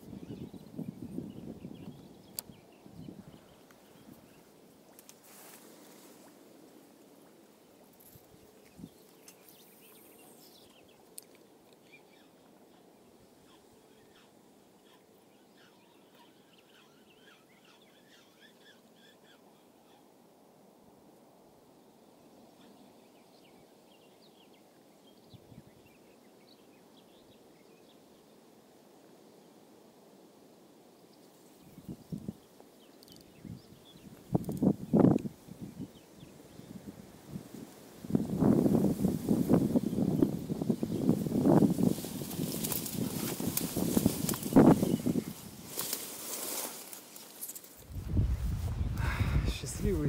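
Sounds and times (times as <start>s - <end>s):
small birds chirping: 0.0s - 6.1s, 7.3s - 20.2s, 30.9s - 36.9s, 38.5s - 50.0s
outdoor hiss: 26.0s - 50.0s.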